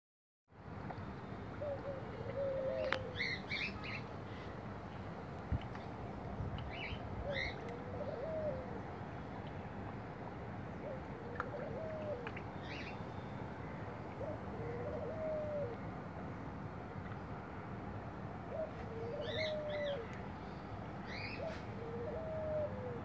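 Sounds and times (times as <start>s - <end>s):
steady background hiss: 0.6s - 23.0s
dove cooing: 1.6s - 3.7s, 7.2s - 8.8s, 10.8s - 12.3s, 14.2s - 15.8s, 18.5s - 20.1s, 21.2s - 23.0s.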